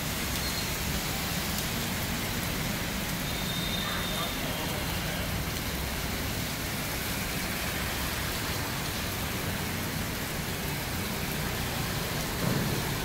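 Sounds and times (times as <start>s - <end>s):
heavy rain on wet pavement: 0.0s - 13.0s.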